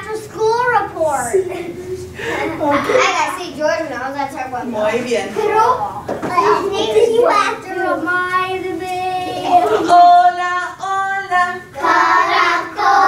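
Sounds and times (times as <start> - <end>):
children singing: 9.0 - 13.0
woman singing: 9.7 - 11.8.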